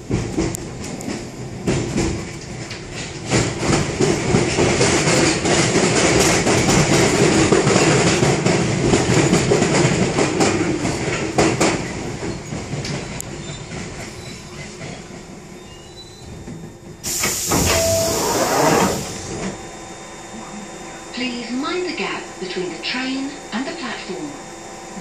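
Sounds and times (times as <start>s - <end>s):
train wheels clattering and rumbling: 0.0s - 19.7s
hiss of air from train doors: 17.0s - 19.5s.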